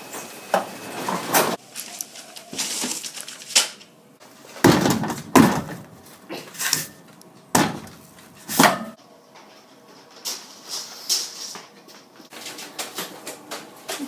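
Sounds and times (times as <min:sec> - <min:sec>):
short rustle: 0:01.6 - 0:03.9.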